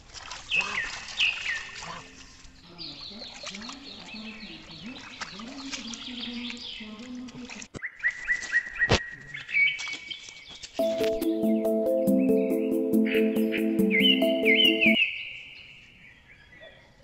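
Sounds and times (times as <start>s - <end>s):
birds chirping: 10.8s - 15.0s.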